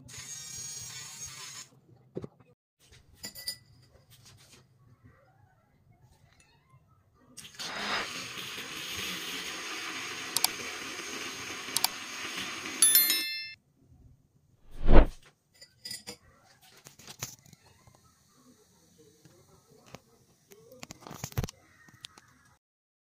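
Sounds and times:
metal clinking on glass: 3.2s - 3.9s, 12.8s - 13.6s
milk frother motor whirring: 7.4s - 12.8s.

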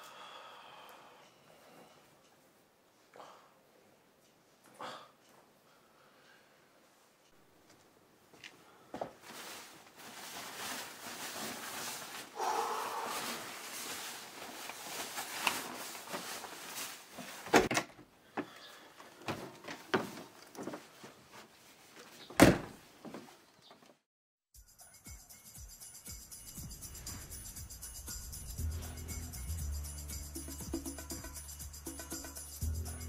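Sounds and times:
fabric rustling: 9.1s - 17.7s, 19.0s - 23.5s
door clicks and knocks: 22.4s - 22.8s
door shutting with thump: 22.4s - 22.8s.

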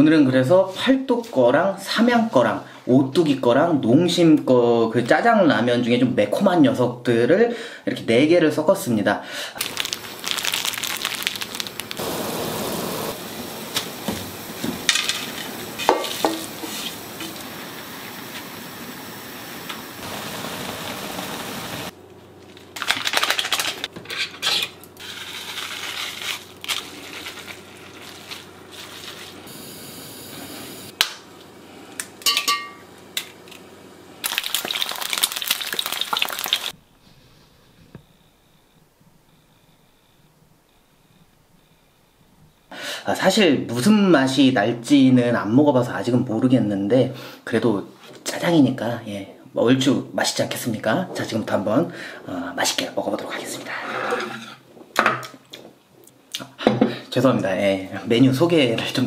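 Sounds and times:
sauce pouring: 9.6s - 19.6s, 34.2s - 36.8s
noodles sizzling in a wok: 9.6s - 21.9s, 25.0s - 30.9s, 34.2s - 36.8s
metal utensils clinking on pan: 32.2s - 32.8s.

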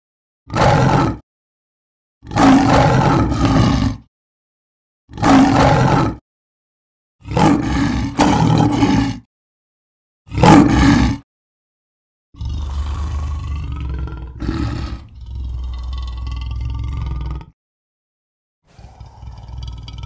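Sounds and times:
lion roaring: 0.5s - 1.2s, 2.2s - 4.1s, 5.1s - 6.2s, 7.2s - 9.3s, 10.3s - 11.2s, 12.4s - 17.6s, 18.7s - 20.0s.

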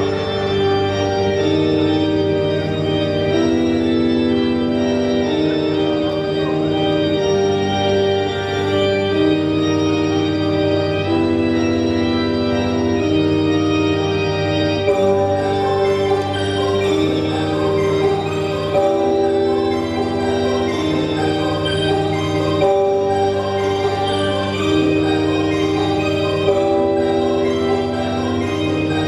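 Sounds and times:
slow held chords: 0.0s - 29.0s.

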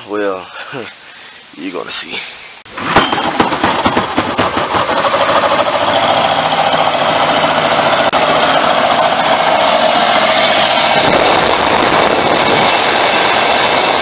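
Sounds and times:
small engine running fast: 3.0s - 14.0s.

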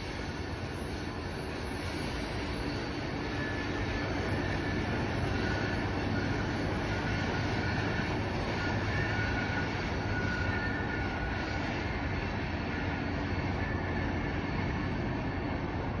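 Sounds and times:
train cars rumbling on rails: 0.0s - 16.0s.

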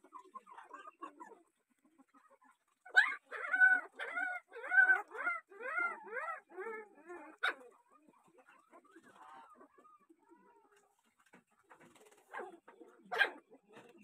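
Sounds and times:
puppy yelping and whining: 2.8s - 7.9s.

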